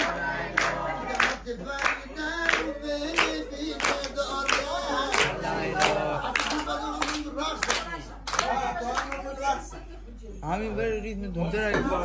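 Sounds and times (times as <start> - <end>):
group singing folk song: 0.0 - 8.9
hand-clapping in time: 0.0 - 9.2.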